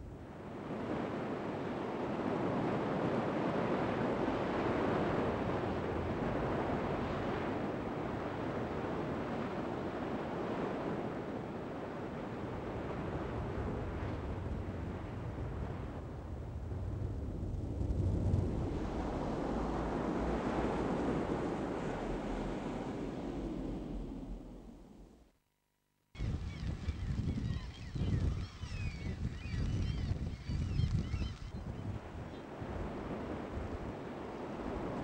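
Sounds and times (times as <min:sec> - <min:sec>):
heavy surf breaking: 0:00.6 - 0:25.2
wind buffeting microphone: 0:02.1 - 0:25.2, 0:26.2 - 0:35.0.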